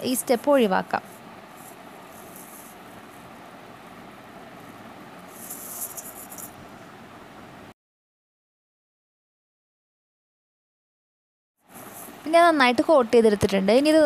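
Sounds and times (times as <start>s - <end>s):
steady low hiss: 0.0s - 7.8s, 11.6s - 14.0s.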